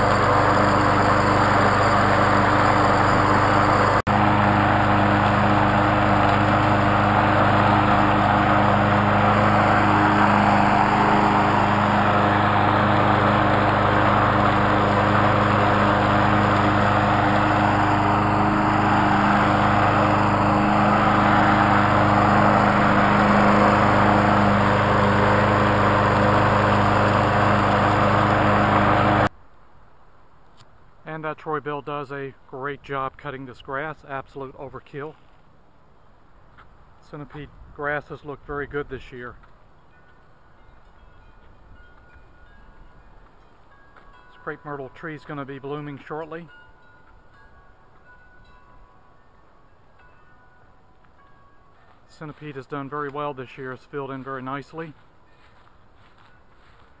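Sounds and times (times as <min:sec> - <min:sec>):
lawn mower engine running: 0:00.0 - 0:29.3.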